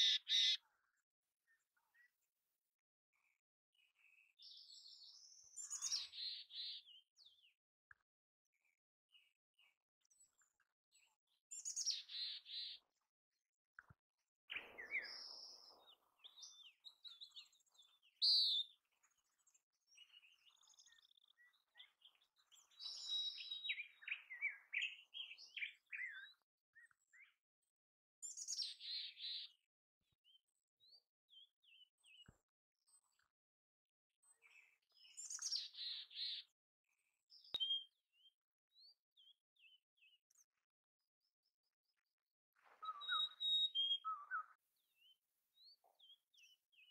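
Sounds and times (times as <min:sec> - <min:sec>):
chickadee chirping: 0:00.0 - 0:00.6.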